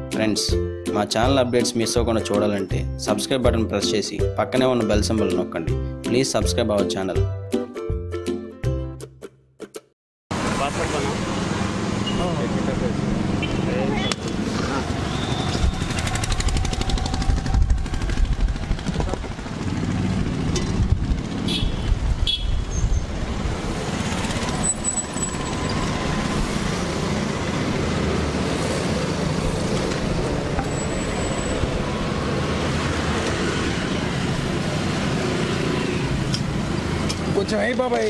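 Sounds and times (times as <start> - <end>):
traffic rumble: 10.3 - 38.0.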